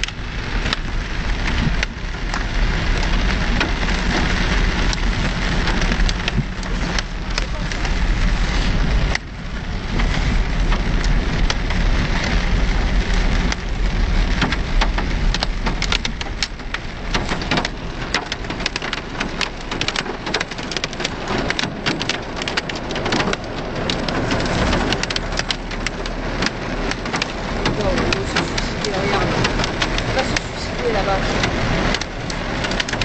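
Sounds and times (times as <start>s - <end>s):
heavy rain drumming on car roof: 0.0s - 33.0s
vehicle low rumble: 0.0s - 33.0s.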